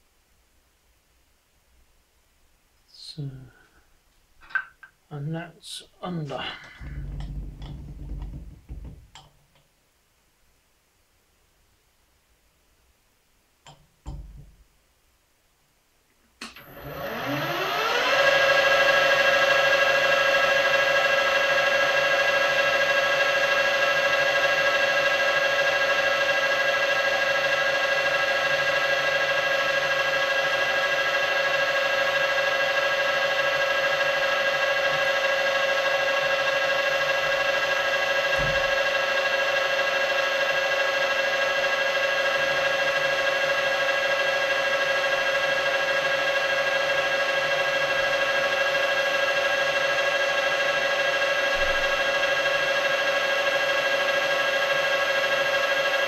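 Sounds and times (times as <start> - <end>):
low knock: 6.8 - 9.2
metal lathe motor whining: 16.6 - 56.0.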